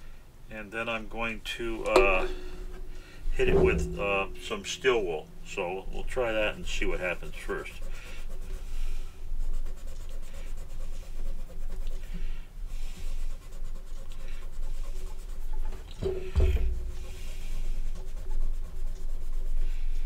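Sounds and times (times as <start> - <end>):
steel wool scrubbing metal: 0.9 - 20.0
low thump: 1.9 - 5.5, 16.0 - 17.1.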